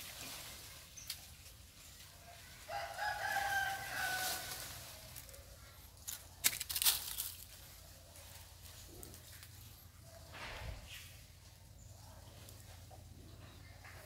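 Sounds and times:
rooster crowing: 2.4s - 4.8s.

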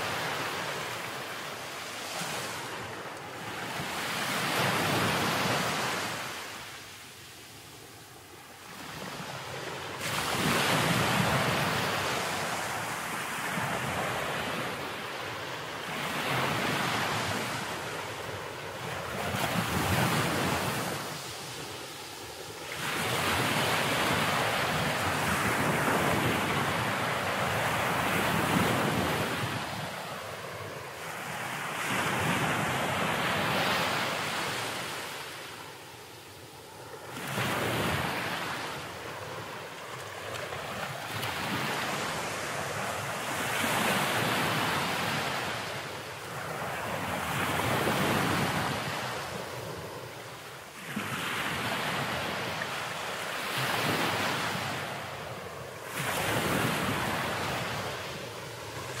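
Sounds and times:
ocean surf on rocky shore: 8.4s - 35.9s.

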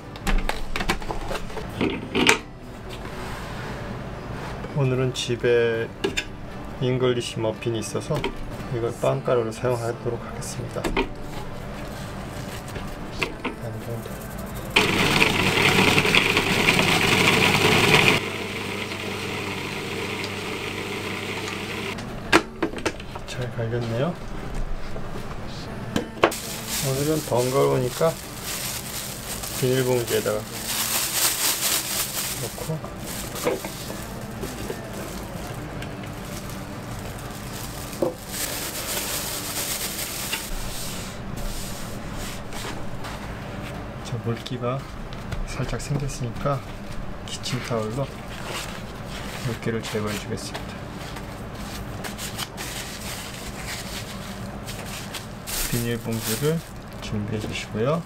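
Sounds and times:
breadcrumbs pouring into plastic bag: 13.9s - 18.2s, 26.3s - 35.6s, 36.2s - 40.6s, 55.5s - 56.8s
food processor motor running: 14.8s - 22.0s.

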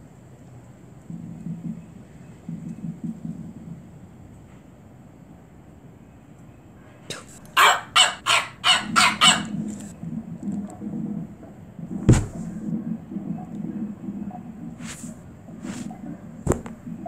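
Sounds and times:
cartoon dog barking: 7.6s - 9.6s.

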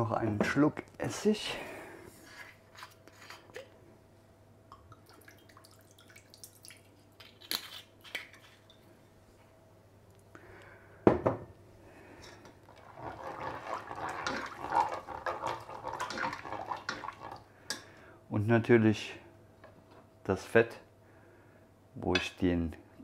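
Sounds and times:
faint steady hum: 0.0s - 23.0s
spatula scraping in metal pot: 12.2s - 17.4s.

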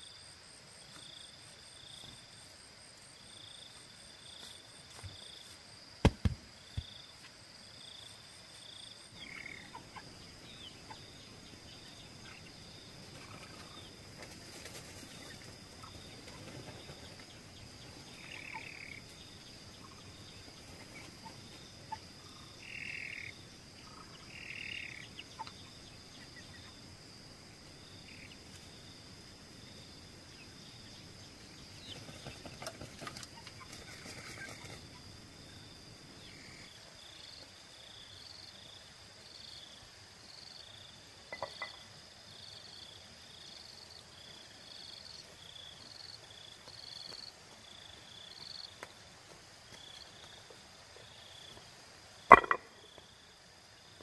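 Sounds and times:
chickens rustling feathers: 12.9s - 18.1s, 19.9s - 21.9s, 31.7s - 35.0s.

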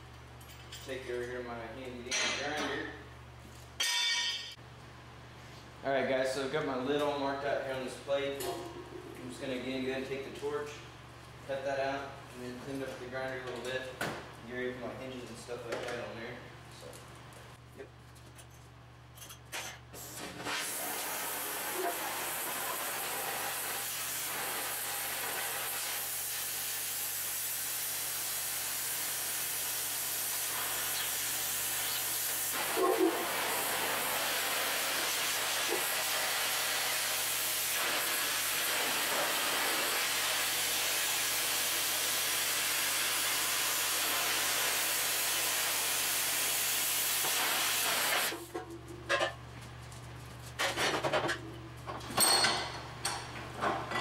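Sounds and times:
cutting torch hissing: 20.4s - 48.4s.

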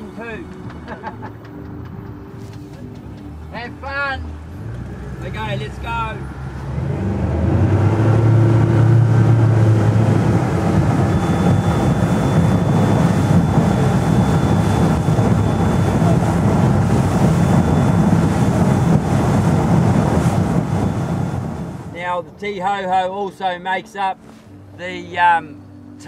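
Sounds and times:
boat engine drone: 0.0s - 26.0s
water rushing past hull: 5.0s - 22.1s
wind buffeting microphone: 6.7s - 22.0s.

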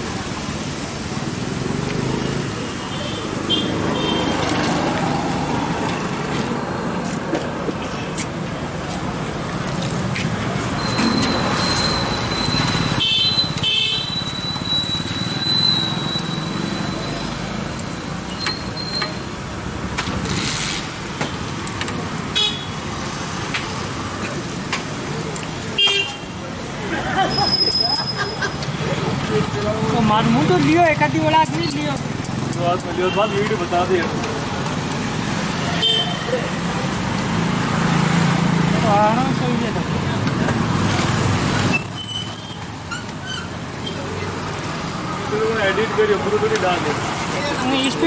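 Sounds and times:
passing road traffic: 0.0s - 48.0s.

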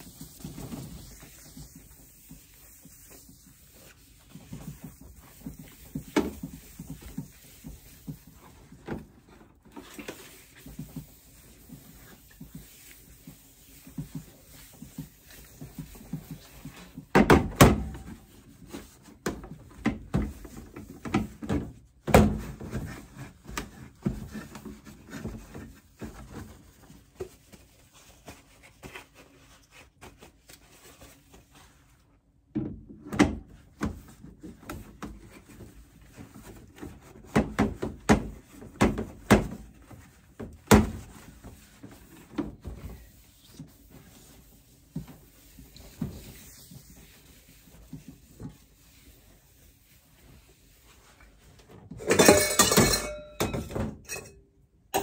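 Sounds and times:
rubbing of wiping counter: 0.0s - 17.1s, 17.7s - 21.6s, 33.4s - 52.6s.

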